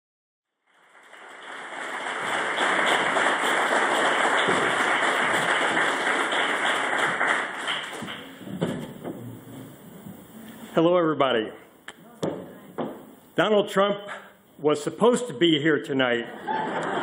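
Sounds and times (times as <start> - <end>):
audience applauding: 0.6 - 9.8.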